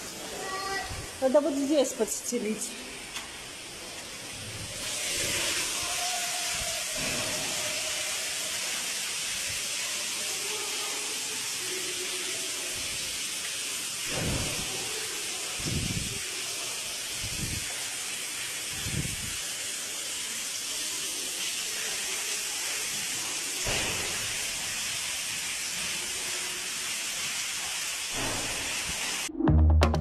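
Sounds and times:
water pouring and splashing: 0.0s - 29.3s
dull low thumps: 29.3s - 30.0s.

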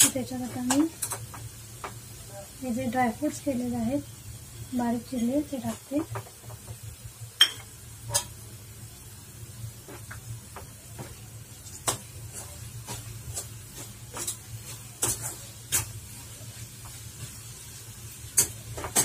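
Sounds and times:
metal spoon scraping a pan: 11.6s - 16.0s.

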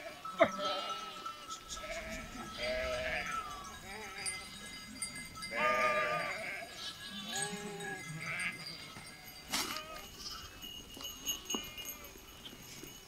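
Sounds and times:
sheep bleating: 0.0s - 4.6s, 5.4s - 9.0s.

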